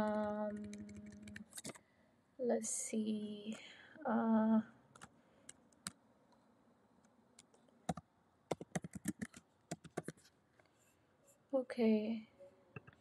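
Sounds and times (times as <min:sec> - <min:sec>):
typing on computer keyboard: 0:00.0 - 0:01.8, 0:07.9 - 0:10.2.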